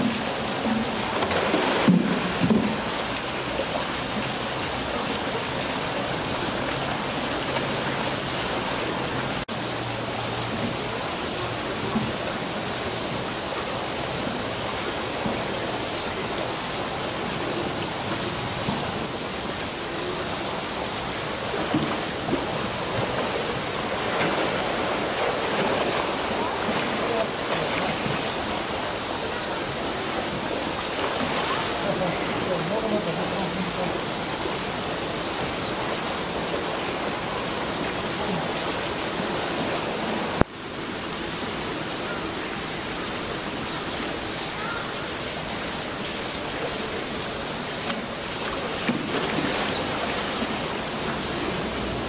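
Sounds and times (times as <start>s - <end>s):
polar bear splashing: 0.0s - 4.3s, 21.4s - 28.9s, 29.7s - 33.9s, 47.7s - 51.0s
rushing water: 0.0s - 52.0s.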